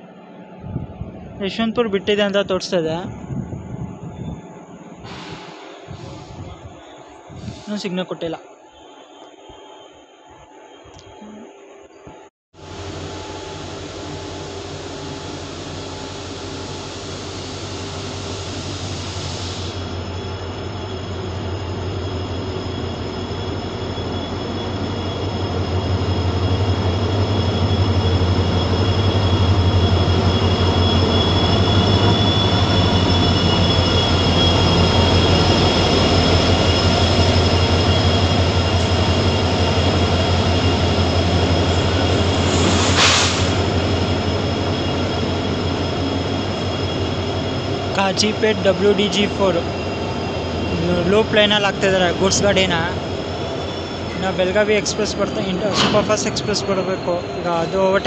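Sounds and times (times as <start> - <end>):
steady high whine: 0.0 - 58.0
diesel locomotive engine throb: 3.1 - 7.7, 12.6 - 58.0
freight wagons rumbling on rails: 19.8 - 58.0.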